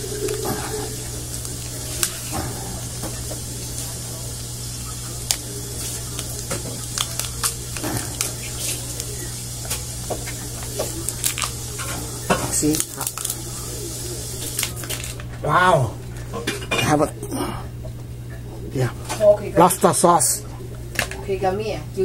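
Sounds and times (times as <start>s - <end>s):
lobster shell cracking: 0.0s - 4.0s, 5.2s - 13.7s, 14.4s - 15.4s
low hum and hiss: 0.0s - 22.0s.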